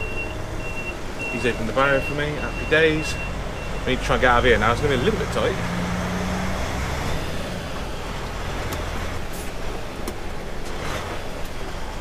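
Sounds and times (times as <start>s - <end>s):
diesel lorry engine rumble: 0.0s - 12.0s.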